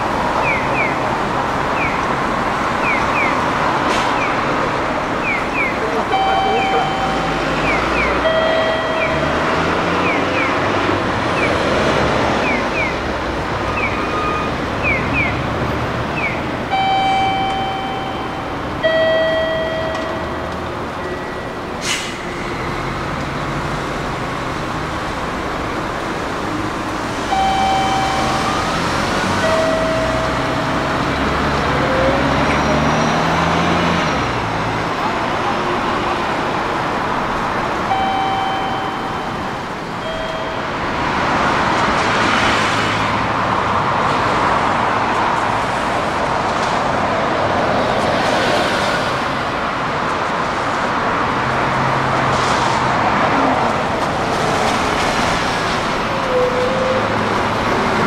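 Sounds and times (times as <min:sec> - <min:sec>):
bus diesel engine running: 0:00.0 - 0:44.0
passing traffic: 0:00.0 - 0:58.0
two-note electronic tone: 0:05.2 - 0:10.5, 0:16.7 - 0:21.4, 0:27.3 - 0:31.1, 0:37.9 - 0:40.8.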